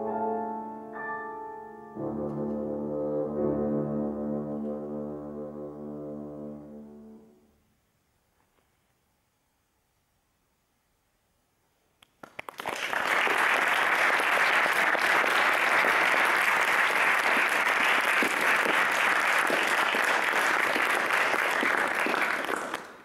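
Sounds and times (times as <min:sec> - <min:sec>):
audience applauding: 0:12.2 - 0:23.0.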